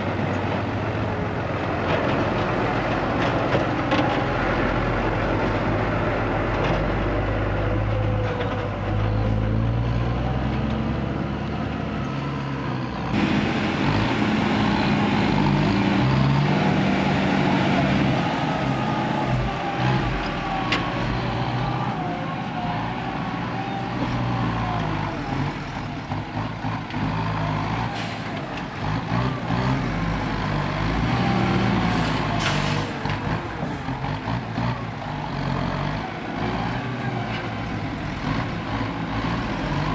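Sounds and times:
diesel truck driving past: 0.0s - 39.9s
truck engine running steadily: 0.0s - 39.9s
soil load tipping out: 13.2s - 25.6s, 30.8s - 33.8s.

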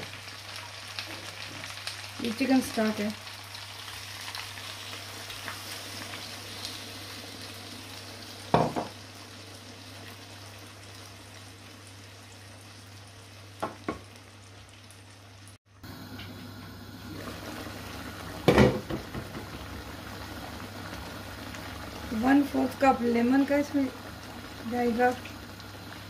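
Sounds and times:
food sizzling in a pan: 0.0s - 26.0s
knocks on pan: 8.5s - 9.0s, 13.6s - 14.1s, 18.4s - 19.6s.

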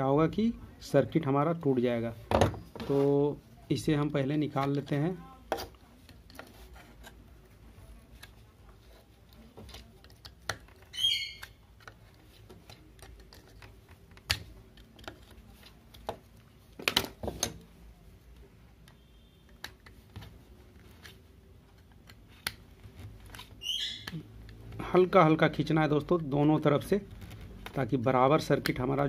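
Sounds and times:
tools clicking on plastic: 9.3s - 16.2s.

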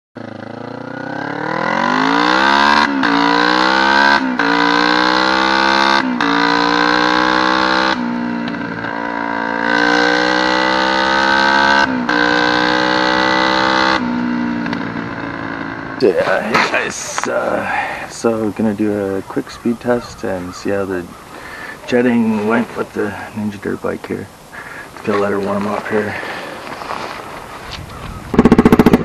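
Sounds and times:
dirt bike engine accelerating: 0.2s - 29.0s.

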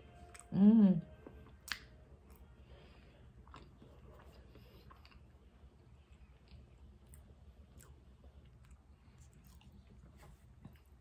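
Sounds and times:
soft chewing mouth clicks: 1.4s - 2.5s, 3.4s - 11.0s.

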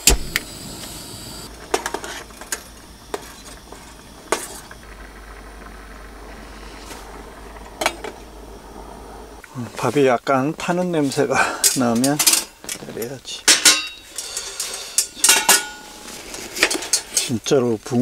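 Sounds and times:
faint steady hiss: 0.0s - 18.0s
metal cookware clinks: 13.5s - 16.0s.

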